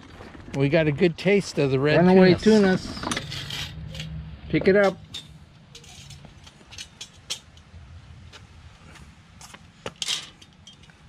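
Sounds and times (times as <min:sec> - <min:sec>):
metal clatter: 0:04.8 - 0:07.7, 0:09.9 - 0:11.0.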